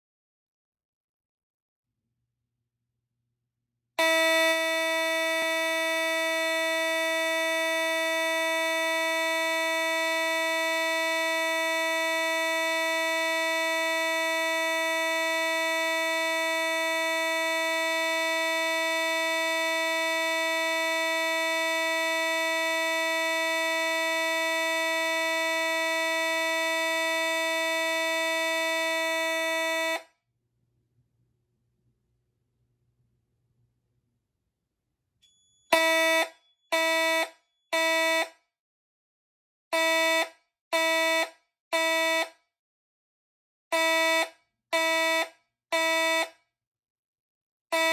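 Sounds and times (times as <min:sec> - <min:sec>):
fire alarm horn steady tone: 0:04.0 - 0:30.2, 0:35.2 - 0:38.4, 0:39.7 - 0:42.4, 0:43.7 - 0:46.4.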